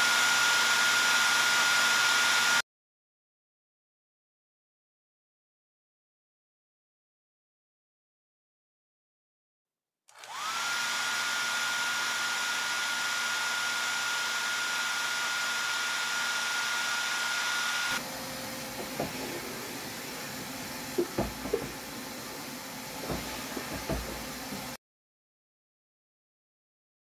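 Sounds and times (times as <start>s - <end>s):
vacuum cleaner whining: 0.0s - 2.6s, 10.1s - 24.8s
nozzle knocking on wood: 18.8s - 19.3s, 21.0s - 21.8s, 23.0s - 24.2s.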